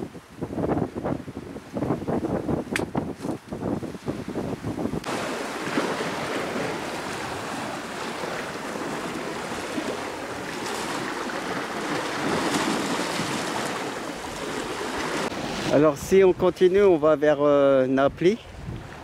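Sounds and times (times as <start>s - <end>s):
waves washing on rocky shore: 5.0s - 16.0s.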